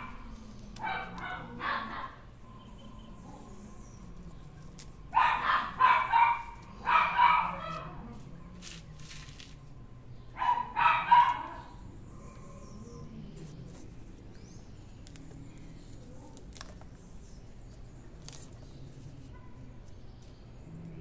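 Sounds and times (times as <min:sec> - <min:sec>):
dog yapping: 0:00.8 - 0:02.3, 0:05.1 - 0:08.1, 0:10.4 - 0:11.7.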